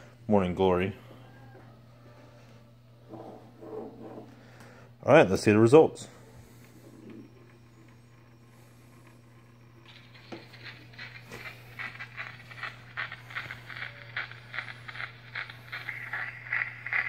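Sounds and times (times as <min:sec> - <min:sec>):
phonograph surface hiss: 0:00.0 - 0:17.0
steady low hum: 0:00.0 - 0:17.0
regular crackle: 0:07.4 - 0:17.0.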